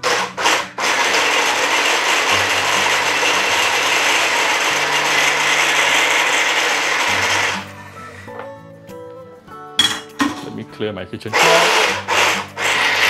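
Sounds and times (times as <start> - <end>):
electric chopper blades whirring: 11.4 - 13.0.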